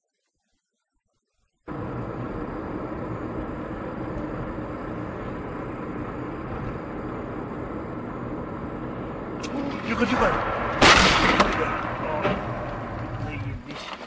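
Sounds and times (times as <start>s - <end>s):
car engine and road noise: 1.7s - 14.0s.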